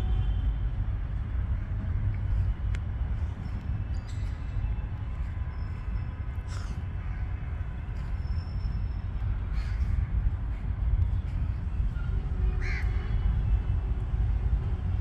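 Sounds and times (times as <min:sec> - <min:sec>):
wind buffeting microphone: 0:00.0 - 0:15.0
bird calling: 0:06.5 - 0:06.8.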